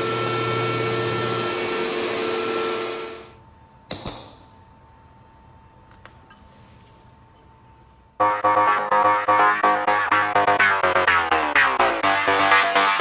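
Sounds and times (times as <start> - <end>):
cnc router running: 0.0 - 3.4.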